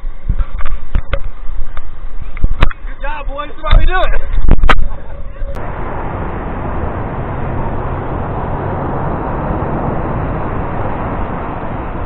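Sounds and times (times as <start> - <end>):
ocean surf breaking: 5.6 - 12.0.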